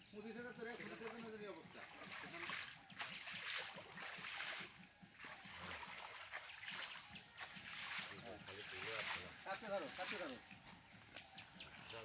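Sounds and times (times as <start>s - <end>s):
pond water splashing: 0.3s - 12.0s
man wading in water: 0.7s - 10.3s.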